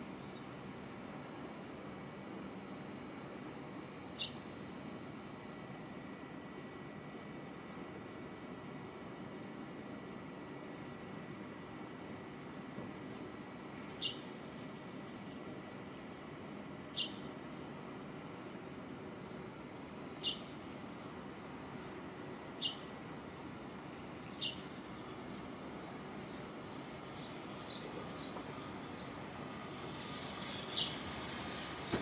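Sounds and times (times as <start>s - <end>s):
low background hum: 0.0s - 32.0s
bird chirping: 16.9s - 17.8s, 20.2s - 21.2s, 22.6s - 23.5s, 24.3s - 25.2s, 30.6s - 31.7s.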